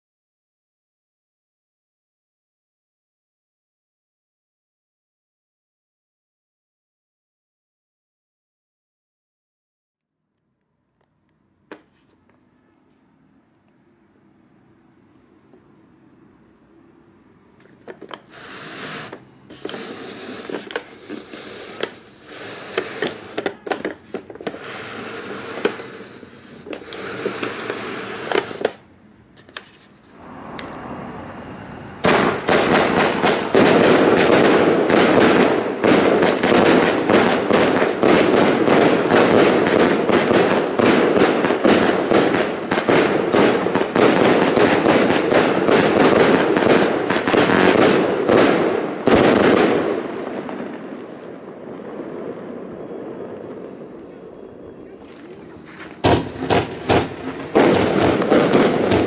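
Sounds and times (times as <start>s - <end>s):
fireworks launching and bursting: 17.8s - 59.0s.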